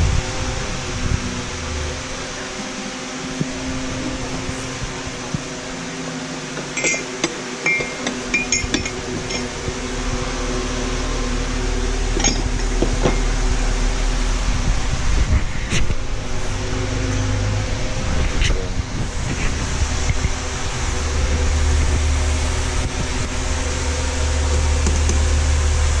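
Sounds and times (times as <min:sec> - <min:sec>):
steady mechanical hum: 0:00.0 - 0:26.0
ceramic dishes clinking: 0:06.8 - 0:09.5.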